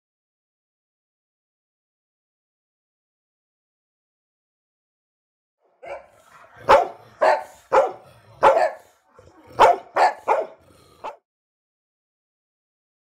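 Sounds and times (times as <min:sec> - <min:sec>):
dog barking: 0:05.7 - 0:11.2.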